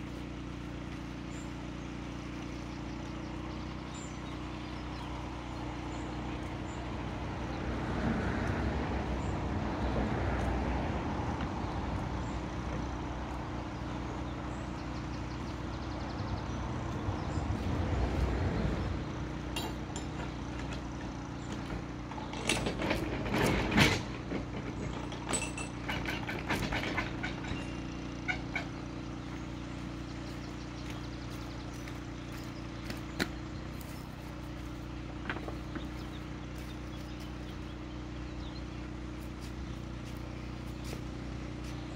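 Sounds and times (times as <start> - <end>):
low engine hum: 0.0 - 41.9
sharp knocks and metallic clanks: 19.4 - 29.9.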